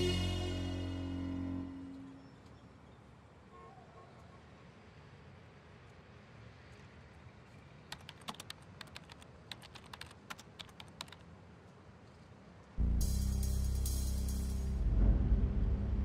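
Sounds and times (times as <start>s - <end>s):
keyboard key clicks: 7.9s - 11.2s.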